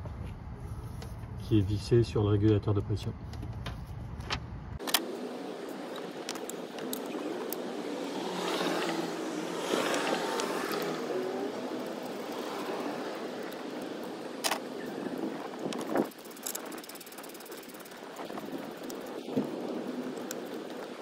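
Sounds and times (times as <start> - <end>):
small clicks and rustles: 3.4 - 7.7, 13.4 - 21.0.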